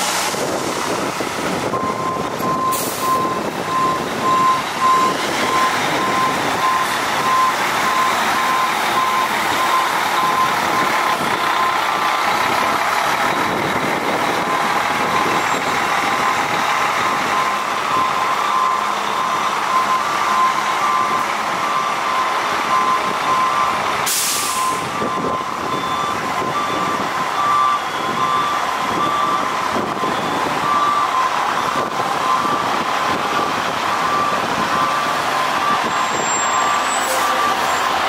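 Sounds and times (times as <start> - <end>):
diesel fire engine maneuvering: 0.0 - 38.0
back-up alarm beeping: 1.7 - 11.8, 14.3 - 32.8, 33.4 - 37.9
air-brake hiss: 24.1 - 24.7.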